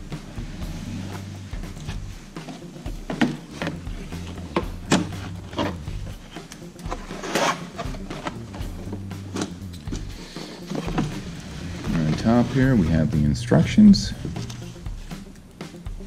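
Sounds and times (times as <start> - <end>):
cardboard knocking and tapping: 2.4 - 5.8
cardboard scraping rustle: 6.9 - 9.5, 10.4 - 13.1.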